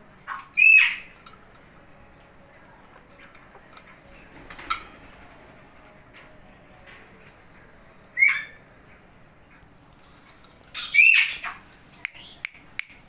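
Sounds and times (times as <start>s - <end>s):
parakeet squawking: 0.3s - 1.1s, 8.2s - 8.6s, 10.7s - 12.4s.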